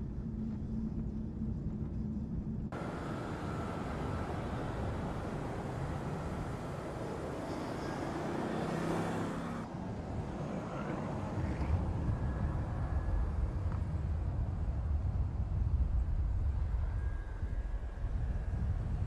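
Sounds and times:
engine and road rumble: 0.0s - 19.0s
car engine running: 2.7s - 9.6s.

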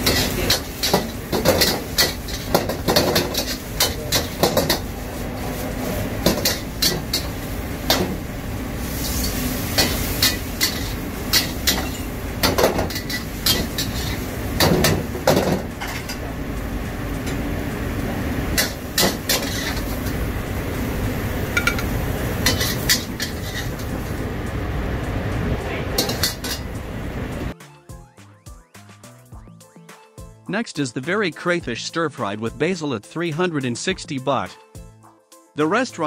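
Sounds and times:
metal spatula clanking in wok: 0.0s - 4.9s, 9.0s - 16.2s, 18.6s - 20.2s, 21.5s - 23.9s, 26.0s - 26.7s
gas burner rushing: 0.0s - 27.6s.

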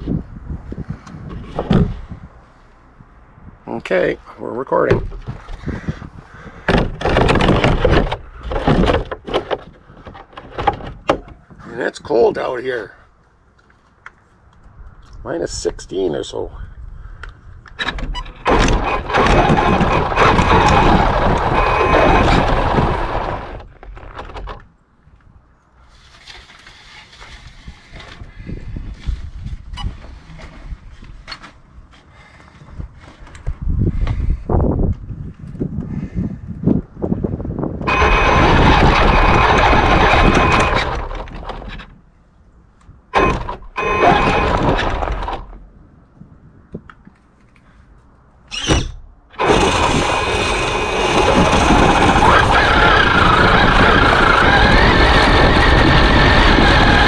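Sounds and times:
tires crunching over snow: 18.5s - 24.2s, 37.0s - 42.0s, 49.4s - 57.0s
electric motor whine: 18.7s - 23.7s, 37.9s - 41.3s, 43.2s - 45.3s, 49.4s - 57.0s.

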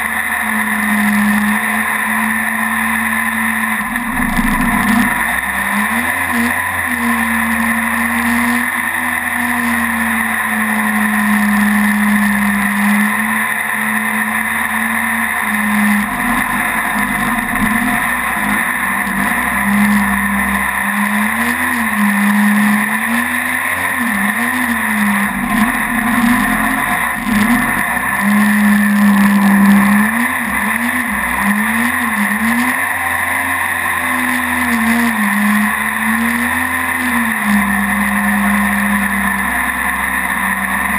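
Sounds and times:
boat engine drone: 0.0s - 40.9s
rushing water noise: 0.0s - 40.9s.

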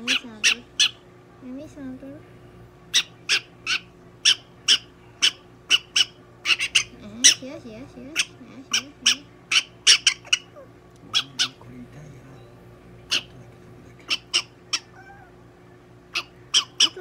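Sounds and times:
prairie dog squeaking: 0.0s - 1.0s, 2.9s - 11.6s, 13.1s - 13.4s, 14.0s - 15.4s, 16.1s - 17.0s.

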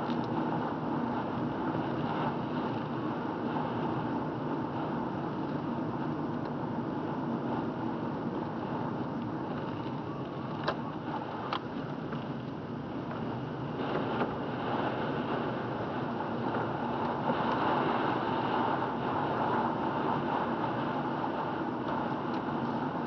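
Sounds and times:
car engine and tyre noise: 0.0s - 23.0s.

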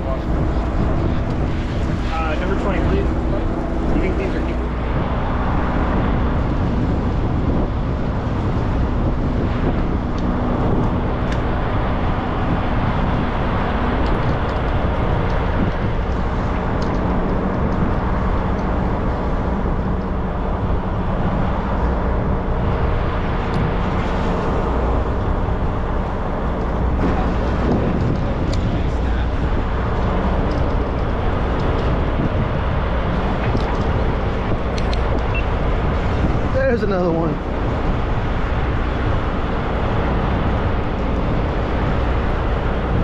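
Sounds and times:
boat engine hum: 0.0s - 43.0s
constant rushing noise: 0.0s - 43.0s.

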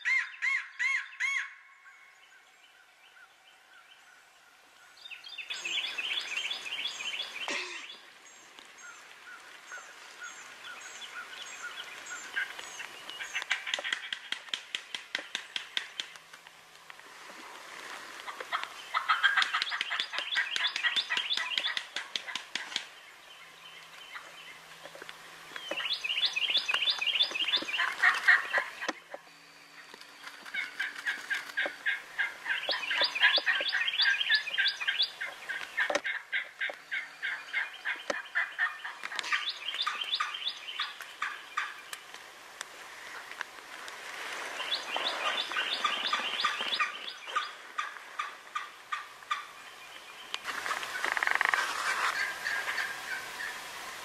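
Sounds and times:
turkey gobbling: 18.2s - 22.7s, 25.8s - 29.0s, 30.4s - 41.8s, 45.0s - 49.5s, 50.8s - 53.5s.

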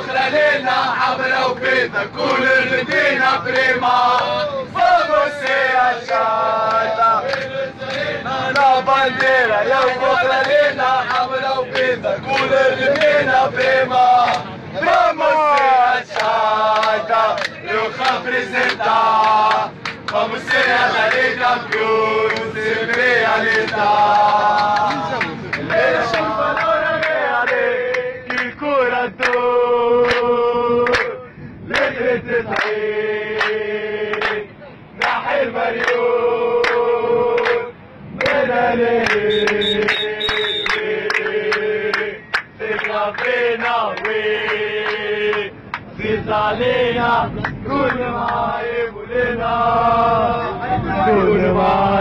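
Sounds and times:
crowd of men chanting: 0.0s - 52.0s
hand claps: 21.1s - 28.5s, 30.0s - 31.2s, 32.5s - 32.8s, 33.4s - 34.4s, 37.4s - 37.6s, 39.0s - 43.4s, 44.0s - 45.8s.

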